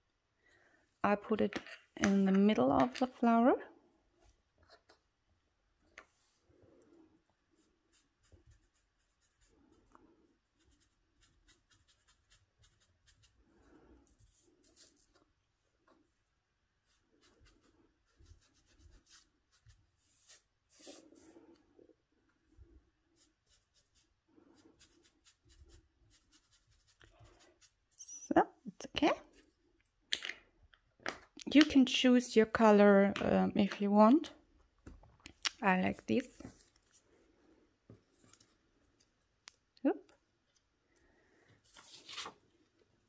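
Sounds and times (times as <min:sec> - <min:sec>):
sponge dabbing on petals: 0:07.4 - 0:15.1, 0:16.8 - 0:21.3, 0:23.1 - 0:28.1.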